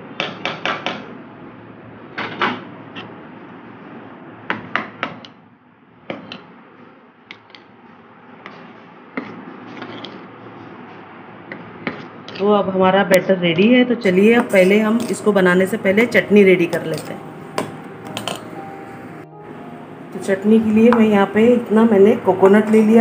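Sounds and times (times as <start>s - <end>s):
spoon clinking against metal bowl: 14.1s - 15.4s, 16.7s - 18.6s.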